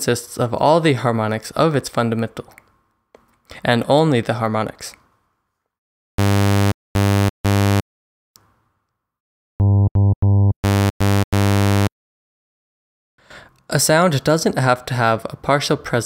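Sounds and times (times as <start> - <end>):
synthesized saw wave notes: 9.6 - 11.9.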